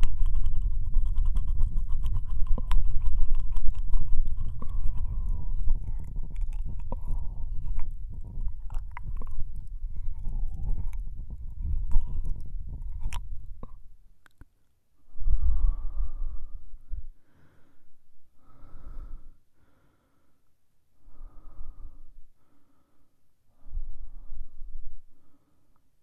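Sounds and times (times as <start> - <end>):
wet mouth clicks and smacks: 0.0 - 14.5.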